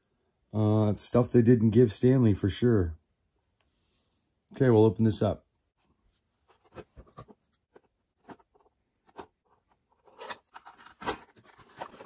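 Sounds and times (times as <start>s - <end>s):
cardboard and plastic rustling: 6.4s - 12.0s
toy packaging being opened: 6.6s - 12.0s.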